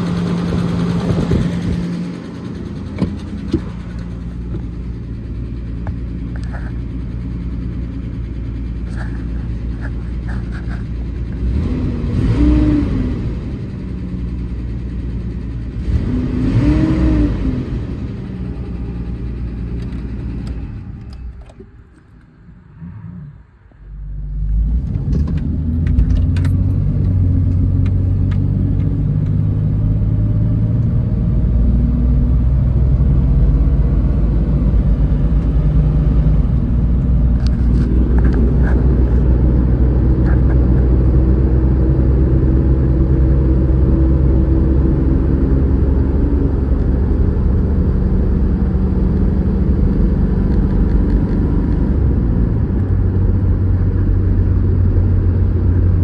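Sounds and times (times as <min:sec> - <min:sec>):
car engine revving: 0:00.0 - 0:21.1, 0:22.5 - 0:56.0
road and tyre noise: 0:00.0 - 0:56.0.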